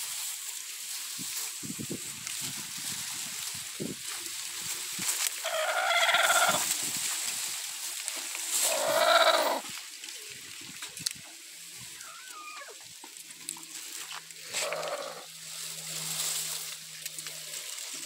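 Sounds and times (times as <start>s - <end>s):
hen calling: 5.4s - 6.7s, 8.6s - 9.7s, 11.8s - 12.8s, 14.4s - 15.4s.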